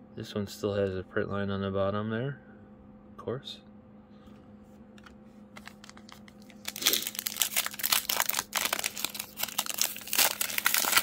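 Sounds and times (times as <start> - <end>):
foil wrapper crinkling and tearing: 5.6 - 11.0.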